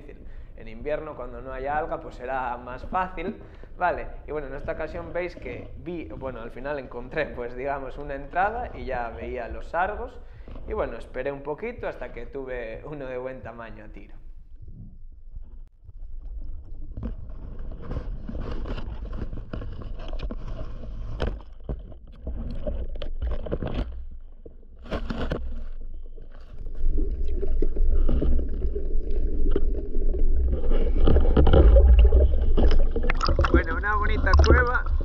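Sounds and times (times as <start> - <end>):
underwater rumble: 14.2 - 35.0.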